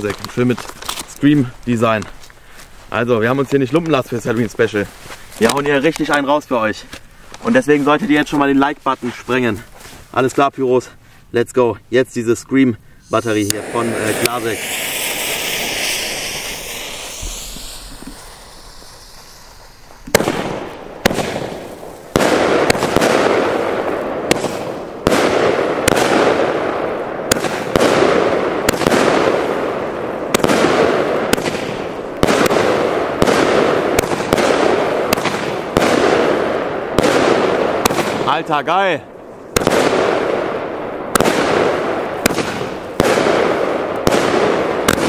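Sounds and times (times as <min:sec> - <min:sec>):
fireworks cracking: 0:00.0 - 0:09.6, 0:13.0 - 0:45.0
firework hiss: 0:12.9 - 0:38.6.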